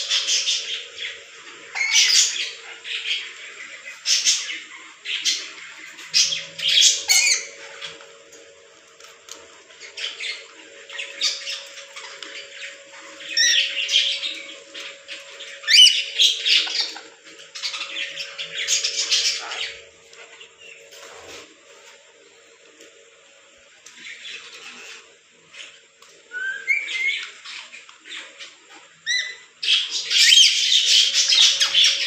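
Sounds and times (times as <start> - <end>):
lorikeets squawking: 0.0 - 8.0, 9.8 - 19.9, 26.3 - 32.0.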